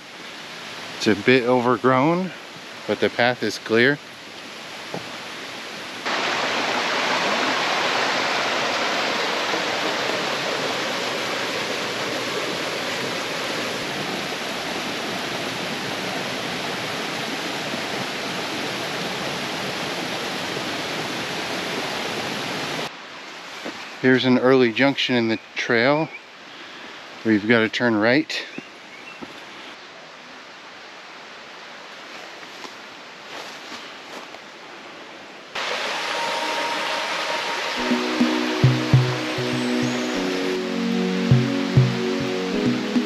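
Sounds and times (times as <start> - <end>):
stream water rushing: 0.0 - 24.0, 34.6 - 43.0.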